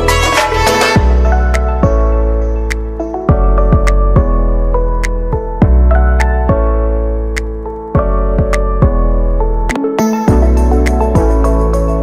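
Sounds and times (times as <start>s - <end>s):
deep beats: 3.3s - 11.5s.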